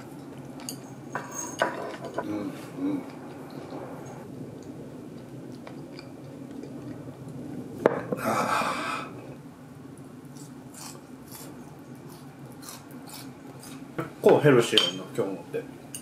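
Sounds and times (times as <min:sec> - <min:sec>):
chopsticks and dishes clinking: 0:00.6 - 0:02.3, 0:14.7 - 0:15.1.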